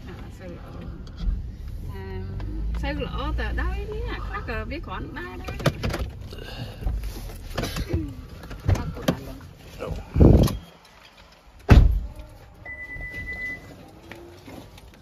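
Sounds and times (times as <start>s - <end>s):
short high beep: 12.6s - 13.7s.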